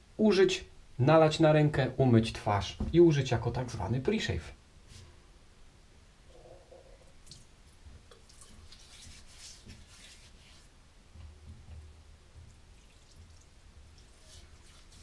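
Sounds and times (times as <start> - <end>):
water dripping: 7.0 - 10.2, 12.3 - 15.0
water splashing over a sink: 12.4 - 15.0.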